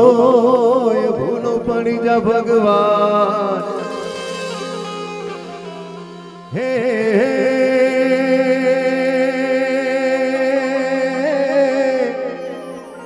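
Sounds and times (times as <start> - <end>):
person singing long wavering note: 2.8 - 9.9
steady drone: 3.6 - 9.0.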